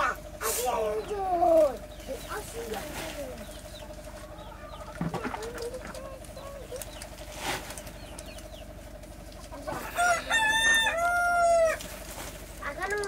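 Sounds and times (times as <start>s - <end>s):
faint bird calls: 0.0s - 10.1s
rooster crowing: 9.8s - 11.9s.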